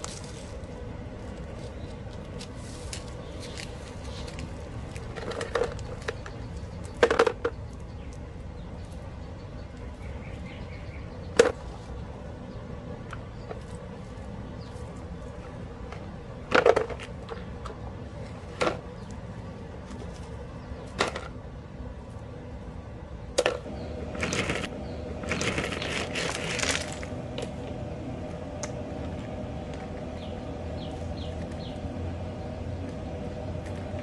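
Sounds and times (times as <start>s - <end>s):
gravel rattling onto plastic sheet: 24.2s - 27.1s
gravel clacking into plastic bucket: 25.2s - 27.1s.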